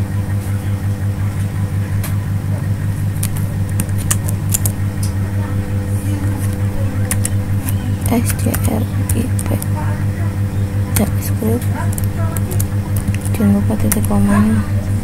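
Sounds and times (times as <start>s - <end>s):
loud throbbing low hum: 0.0s - 15.0s
keyboard keys clicking: 3.0s - 9.9s, 10.8s - 14.4s.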